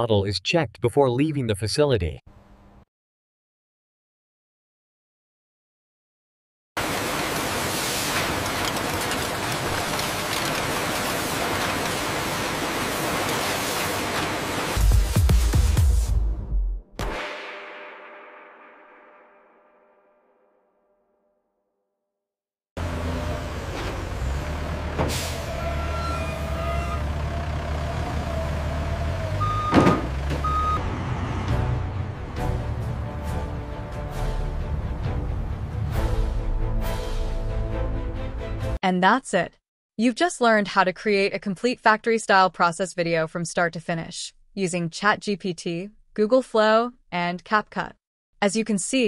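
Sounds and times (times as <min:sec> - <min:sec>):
factory ambience hiss: 0:06.8 - 0:08.7, 0:10.2 - 0:14.8
forklift and truck engines running: 0:22.8 - 0:33.5
short warning beeps: 0:29.4 - 0:30.8.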